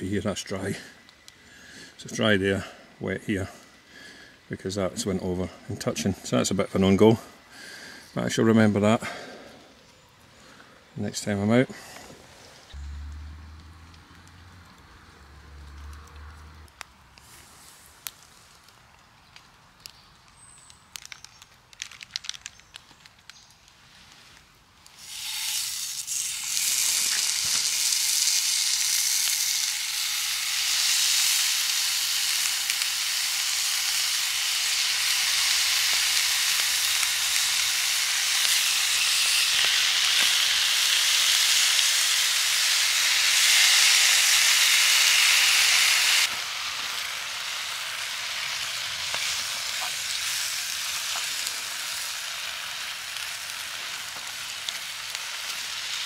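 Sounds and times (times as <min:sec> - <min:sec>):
bacon sizzling in a frying pan: 0:24.9 - 0:56.0.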